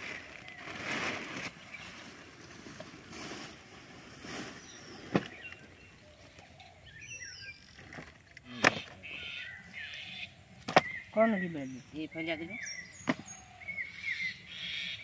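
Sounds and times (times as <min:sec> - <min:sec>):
firewood sticks rustling: 0:00.0 - 0:05.8.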